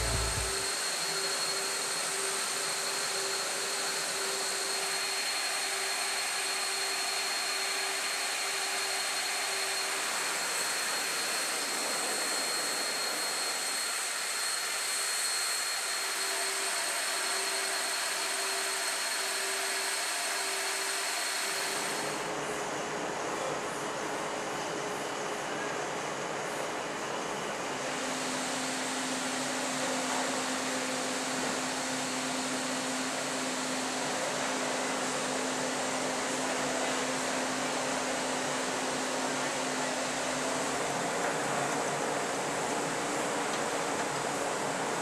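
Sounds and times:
low pulsing tone: 0.0s - 0.6s
machinery rushing noise: 0.0s - 0.6s
high steady whine: 0.0s - 0.8s.

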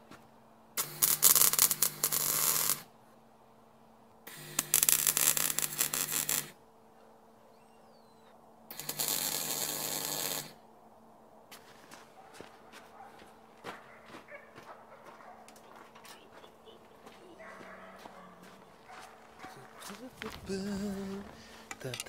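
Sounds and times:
welder low hum: 0.0s - 11.5s, 16.5s - 22.0s
arc welder crackling: 0.7s - 2.9s, 4.2s - 6.6s, 8.7s - 10.6s, 18.7s - 22.0s.

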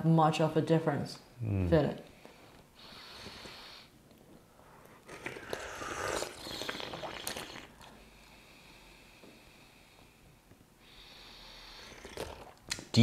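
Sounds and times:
person slurping tea: 5.0s - 8.0s, 11.7s - 12.6s.

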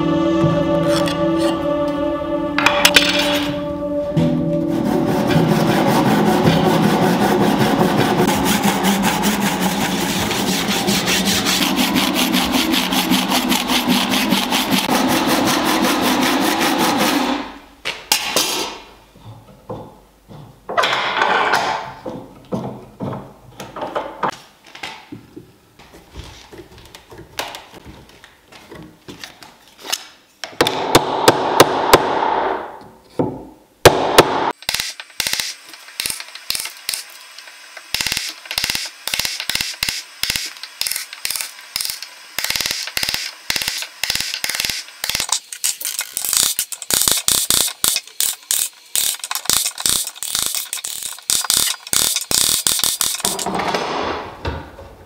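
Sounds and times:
scraping noise: 0.0s - 17.1s.

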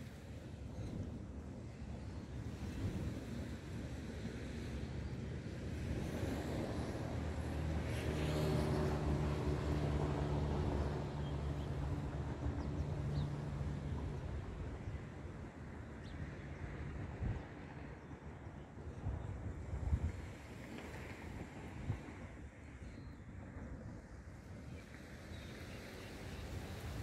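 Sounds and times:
engine drone passing: 6.1s - 14.1s.

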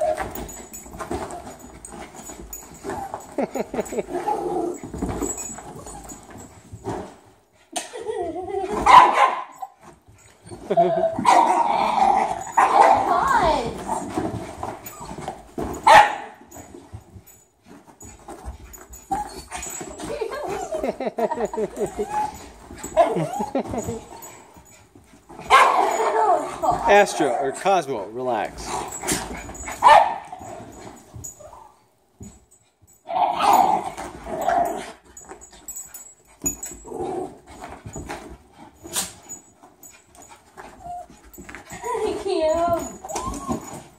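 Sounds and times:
dogs whining and yipping: 0.0s - 7.0s, 8.1s - 14.0s, 14.6s - 15.7s, 18.0s - 26.8s, 28.7s - 31.9s, 33.1s - 43.9s
dog barking: 8.8s - 9.6s, 15.9s - 16.4s, 25.5s - 26.0s, 29.8s - 30.2s
small dogs panting: 34.8s - 43.9s.

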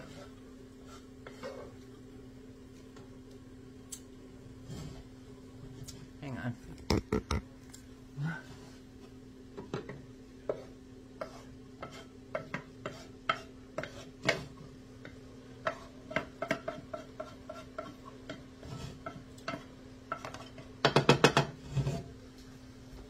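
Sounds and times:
wooden spatula scraping metal pan: 0.0s - 1.8s, 10.4s - 14.6s, 15.6s - 20.7s, 21.3s - 22.1s.

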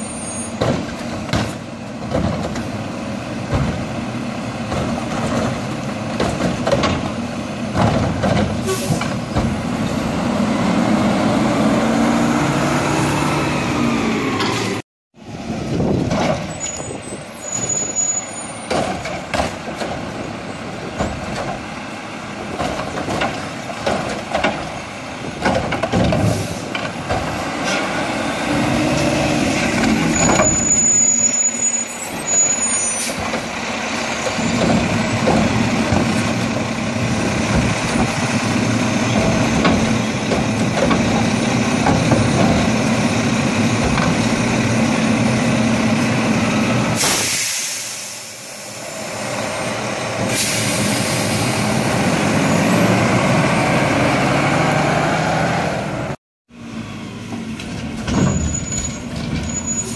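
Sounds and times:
garbage truck diesel engine: 0.0s - 59.9s
air brake hiss: 47.0s - 48.8s, 50.3s - 51.7s.

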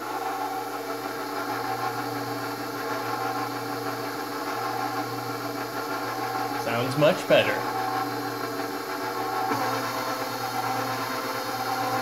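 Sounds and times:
stand mixer motor humming: 0.0s - 12.0s.

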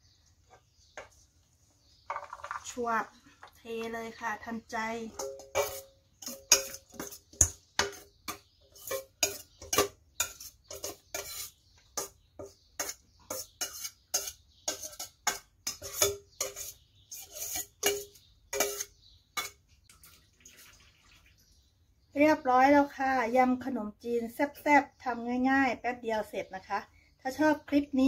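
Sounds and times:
metal spoon clinking on steel bowl: 5.1s - 19.6s.

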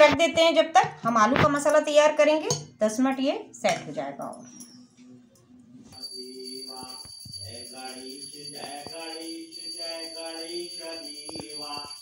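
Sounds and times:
jingling bells: 6.0s - 12.0s.

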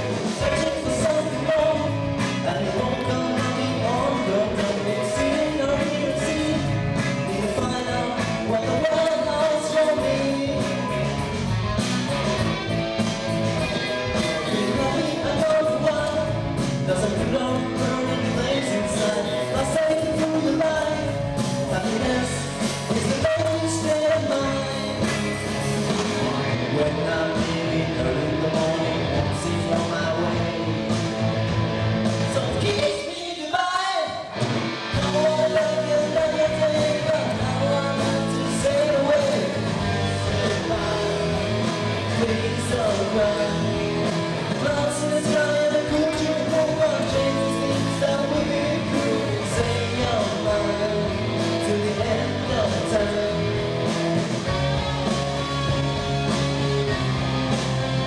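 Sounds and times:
man singing: 0.0s - 11.4s, 13.6s - 31.4s, 32.0s - 55.0s
rock band playing: 0.0s - 58.0s.

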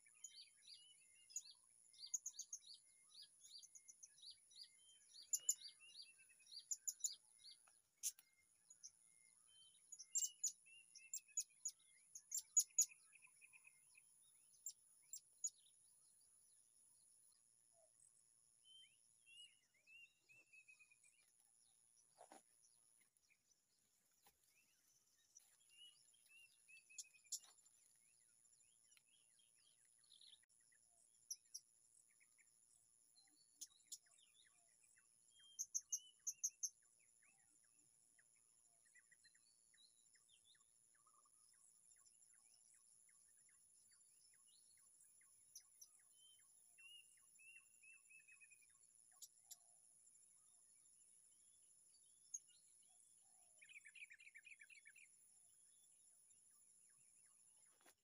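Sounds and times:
bird chirps and calls: 0.0s - 16.2s, 24.2s - 28.0s.

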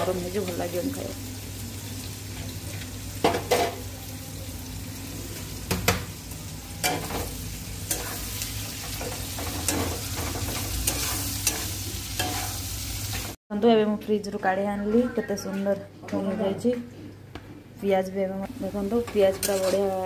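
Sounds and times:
frying hiss: 0.0s - 13.4s
metal utensils clinking on pots: 19.0s - 20.0s.

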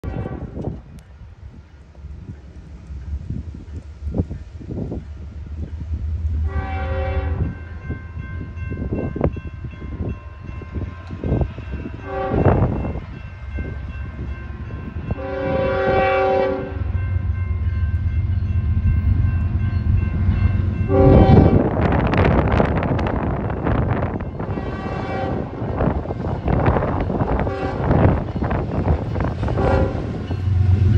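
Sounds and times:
locomotive air horn blasts: 0.0s - 0.6s, 6.4s - 7.6s, 12.0s - 12.7s, 15.0s - 16.9s, 20.9s - 21.8s, 24.4s - 25.6s, 27.2s - 28.4s, 29.4s - 30.9s
diesel locomotive rumble: 0.1s - 30.9s.

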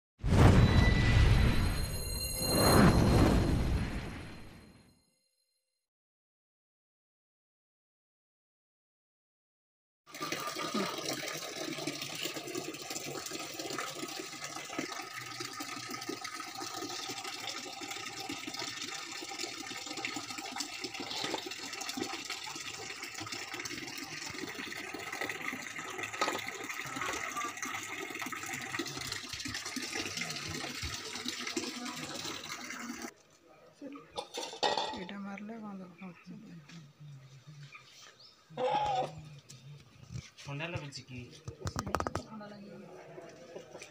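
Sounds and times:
water running from tap into bucket: 10.1s - 33.1s.

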